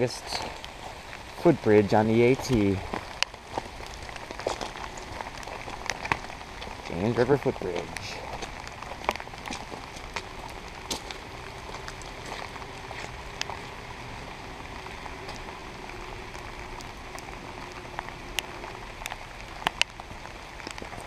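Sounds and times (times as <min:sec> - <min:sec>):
steady rain falling: 0:00.0 - 0:21.0.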